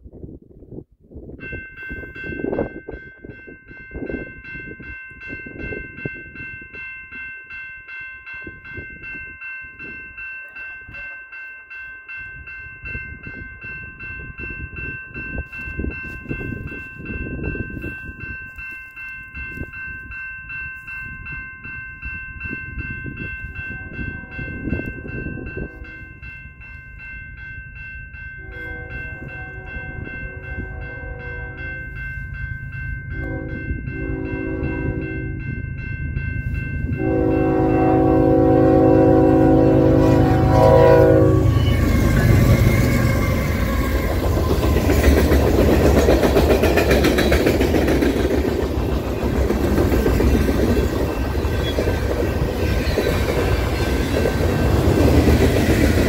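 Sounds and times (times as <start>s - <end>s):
level crossing bell ringing: 1.4s - 43.7s
train horn chord: 28.4s - 31.8s, 33.1s - 35.5s, 36.8s - 44.0s.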